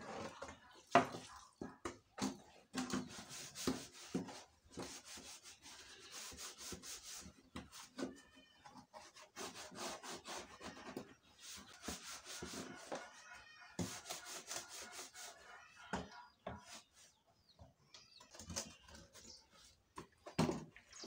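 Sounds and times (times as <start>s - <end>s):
scrubbing wet plastic trays: 0.0s - 8.2s
chickens clucking: 11.1s - 18.4s.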